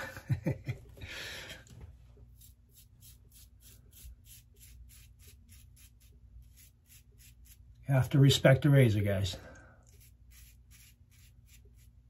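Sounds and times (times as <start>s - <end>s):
razor scraping stubble: 2.2s - 9.0s, 9.8s - 12.0s.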